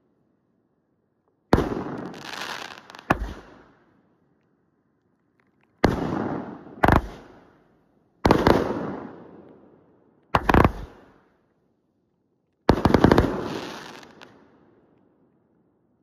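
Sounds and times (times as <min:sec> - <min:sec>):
fireworks bangs: 0:01.6 - 0:03.6, 0:05.8 - 0:07.4, 0:12.7 - 0:14.3.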